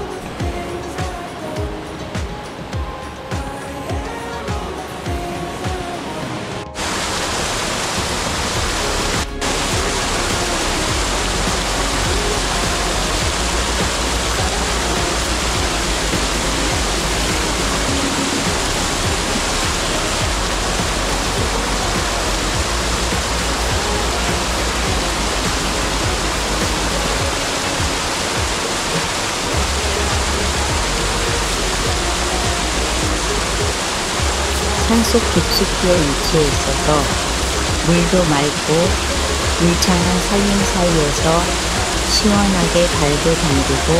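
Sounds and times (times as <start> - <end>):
stream rushing over rocks: 0.0 - 43.9.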